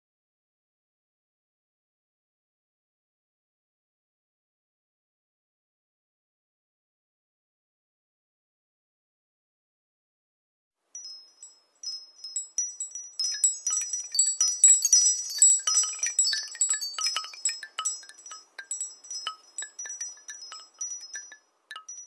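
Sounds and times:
high ringing chimes: 11.0s - 22.0s.

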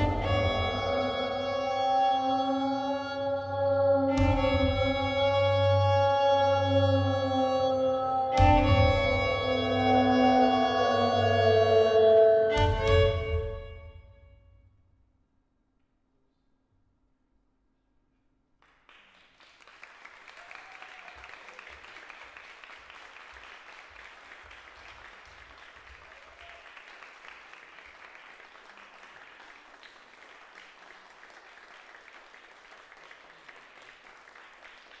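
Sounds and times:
audience applauding: 18.6s - 35.0s.

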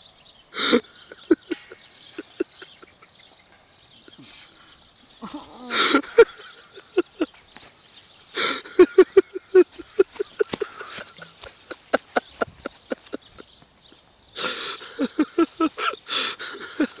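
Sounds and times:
man laughing hard: 0.6s - 3.1s, 5.2s - 7.4s, 8.4s - 13.6s, 14.4s - 17.0s
noisy breath: 3.5s - 6.1s, 8.3s - 8.8s, 14.4s - 17.0s.

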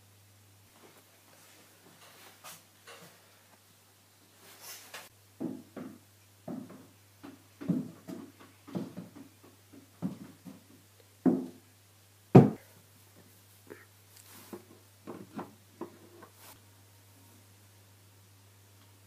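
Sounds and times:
footsteps on wooden floor: 5.4s - 11.6s
heavy thump: 12.4s - 12.6s.

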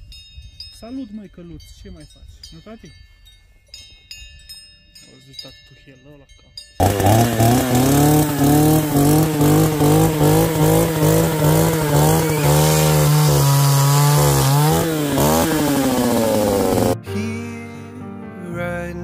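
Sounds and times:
small engine running: 6.8s - 17.0s.

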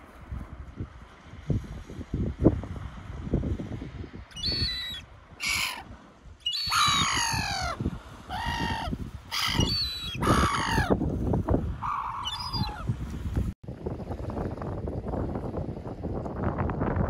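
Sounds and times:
wind rumbling on microphone: 0.0s - 17.0s
gulls calling: 4.3s - 11.0s, 11.8s - 12.9s.

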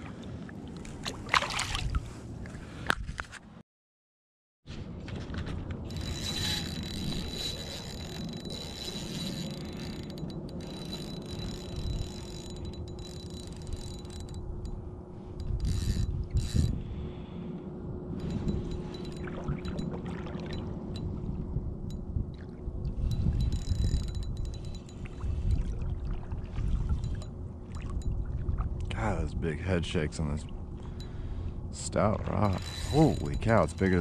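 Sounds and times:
fishing reel whirring and clicking: 5.9s - 16.8s, 18.2s - 21.1s, 23.0s - 25.4s, 27.0s - 28.1s, 32.4s - 34.0s.

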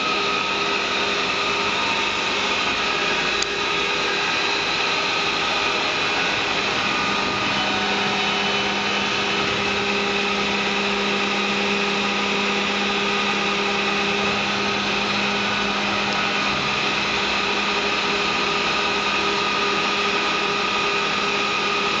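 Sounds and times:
low tone: 0.0s - 20.2s
milling machine humming: 0.0s - 22.0s.

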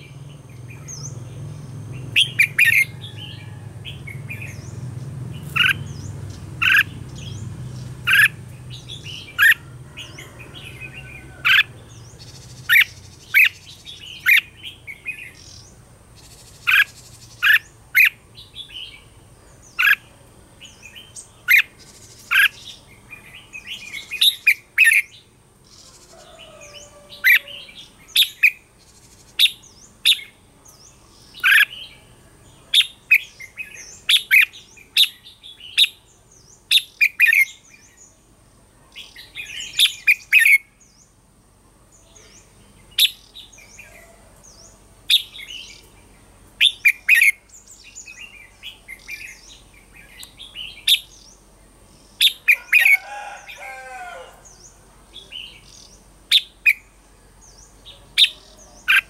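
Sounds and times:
bird whistled song: 2.1s - 3.2s, 39.0s - 40.7s, 43.0s - 44.0s, 46.6s - 51.4s, 52.2s - 52.9s.

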